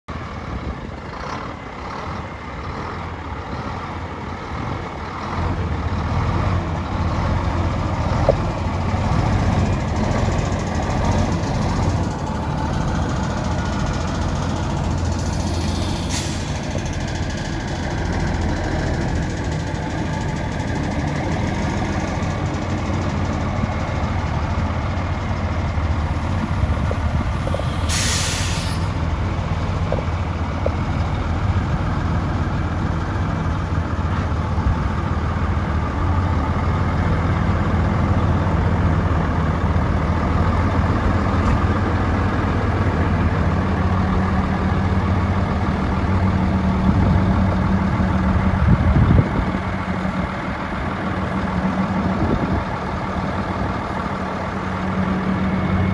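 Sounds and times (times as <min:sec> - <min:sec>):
diesel engine idling: 0:00.1 - 0:55.9
air brake hiss: 0:15.4 - 0:16.7, 0:27.6 - 0:29.0.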